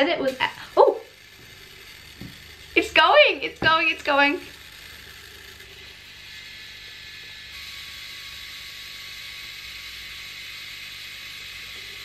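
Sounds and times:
photo printer motor whirring: 0.0s - 12.0s.

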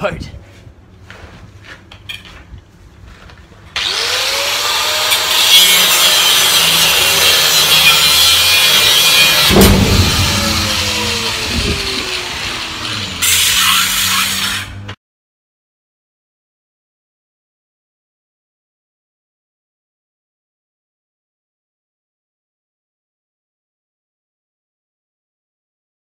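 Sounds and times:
angle grinder cutting steel bolt: 3.8s - 15.0s.

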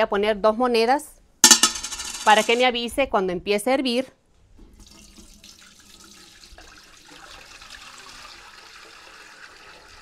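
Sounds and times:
water pouring into metal pot: 4.8s - 10.0s.

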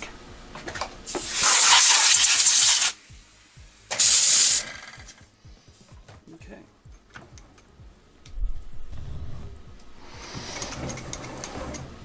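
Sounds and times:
compressed air hissing: 1.1s - 6.0s, 9.4s - 11.0s.

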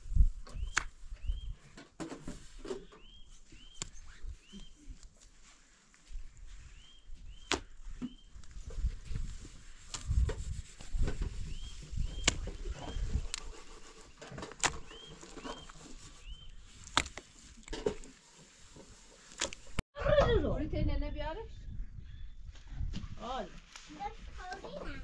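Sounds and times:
hands scraping earth: 2.2s - 19.8s
stones clicking and knocking: 16.8s - 18.0s.

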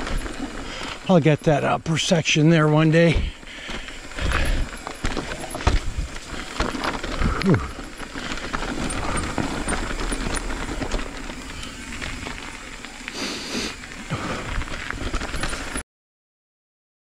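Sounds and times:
bike rattling: 0.0s - 15.8s
tyres crunching over gravel: 0.0s - 15.8s
wind rumble on microphone: 5.5s - 8.0s.

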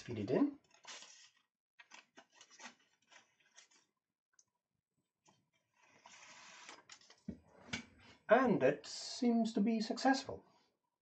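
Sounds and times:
paper tape rustling: 0.6s - 3.9s.

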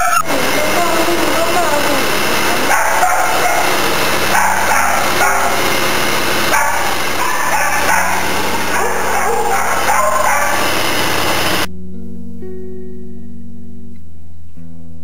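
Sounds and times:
music playing: 0.0s - 6.0s
dogs barking and yipping: 0.0s - 11.7s.

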